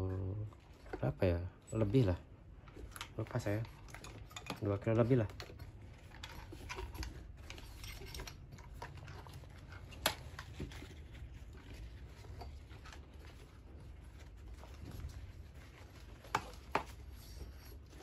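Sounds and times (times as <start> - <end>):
webbing rustling: 4.6 - 18.0.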